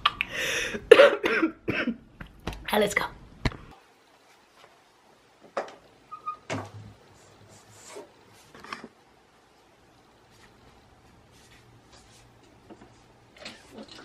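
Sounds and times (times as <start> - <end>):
faint knocks and rustles: 10.3 - 14.0.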